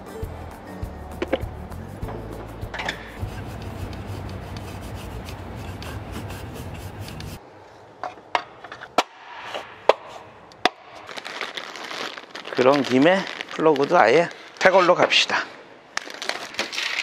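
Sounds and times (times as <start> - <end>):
steady background noise: 0.0 - 13.0
cloth rubbing over engine: 3.1 - 7.4.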